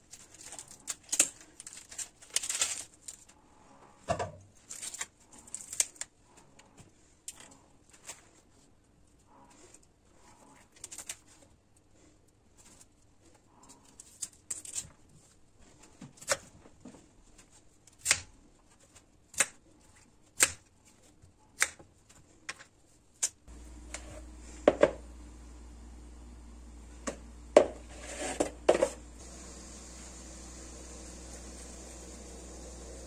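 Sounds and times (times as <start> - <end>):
steady low hum: 23.5 - 33.0.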